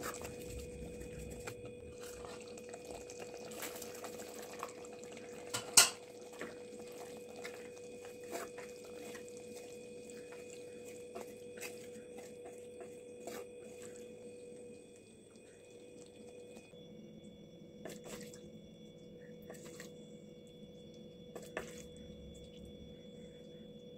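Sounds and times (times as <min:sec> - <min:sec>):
wooden spoon stirring in a pot: 0:00.0 - 0:16.7, 0:21.3 - 0:22.6
faint hum: 0:00.0 - 0:23.9.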